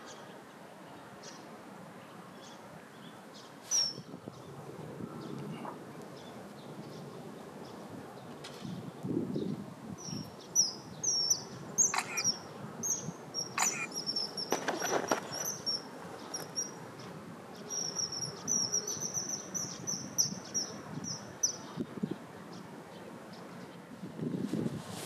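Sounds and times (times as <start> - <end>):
kingfisher piping calls: 10.6 - 16.8.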